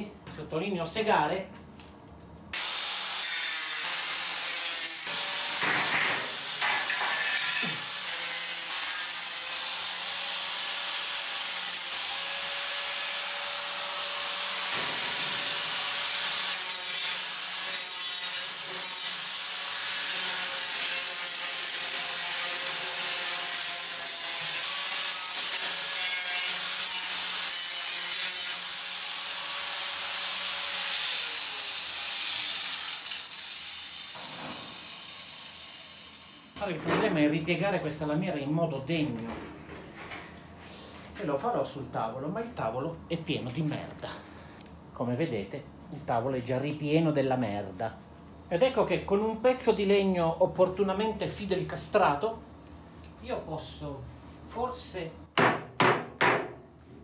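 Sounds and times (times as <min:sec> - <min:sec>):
angle grinder cutting sheet metal: 0:02.6 - 0:36.6.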